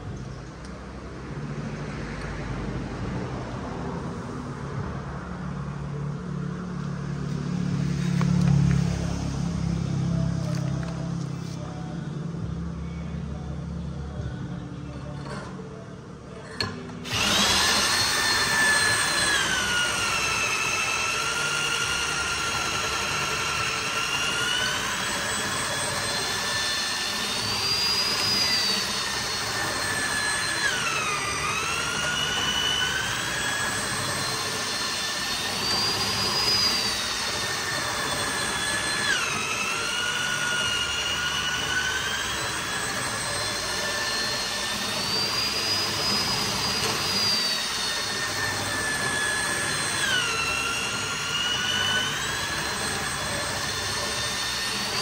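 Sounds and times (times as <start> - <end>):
electric drill boring into wood: 16.6 - 55.0.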